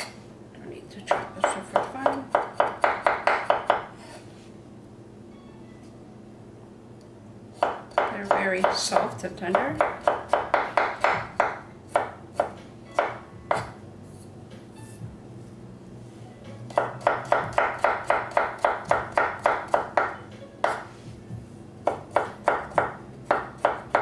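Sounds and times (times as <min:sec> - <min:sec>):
knife chopping on wooden board: 0:01.1 - 0:03.9, 0:07.6 - 0:13.8, 0:16.7 - 0:20.9, 0:21.8 - 0:24.0.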